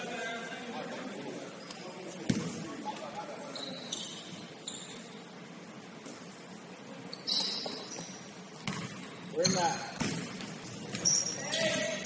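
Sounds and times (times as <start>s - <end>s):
murmur of hall: 0.0s - 12.0s
sneaker squeaks on court: 3.5s - 5.2s, 7.1s - 12.0s.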